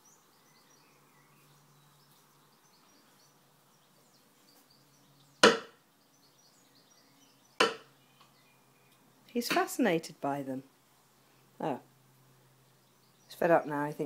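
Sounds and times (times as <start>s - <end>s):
faint bird chirps: 0.0s - 9.3s
sharp knock: 5.4s - 5.8s, 7.6s - 7.9s.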